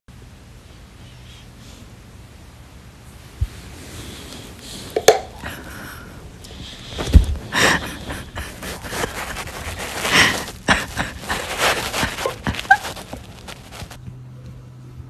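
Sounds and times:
faint low hum: 0.1s - 15.0s
dogs breathing noisily: 3.4s - 14.0s
dogs licking: 6.4s - 14.0s.

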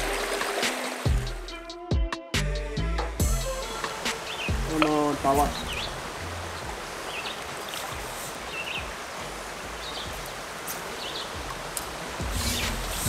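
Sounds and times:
creek water running: 0.0s - 1.7s, 3.1s - 13.0s
bird chirps: 4.2s - 6.0s.

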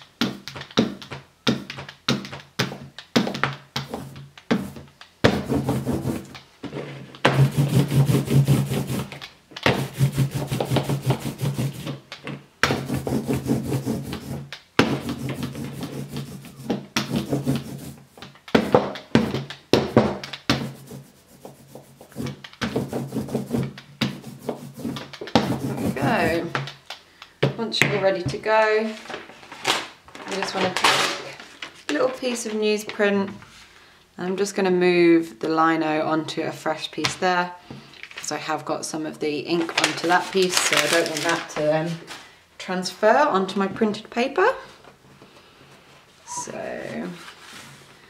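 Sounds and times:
ink roller rolling over block: 3.8s - 26.7s.

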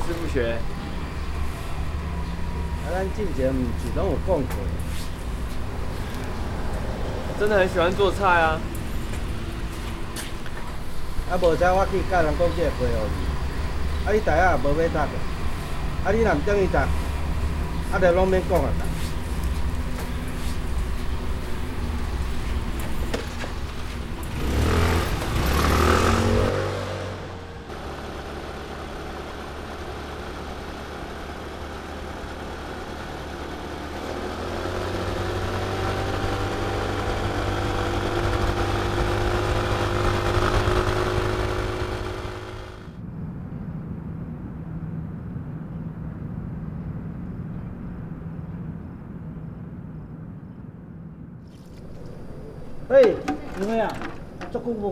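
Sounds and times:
motor scooter engine revving: 21.2s - 43.0s.

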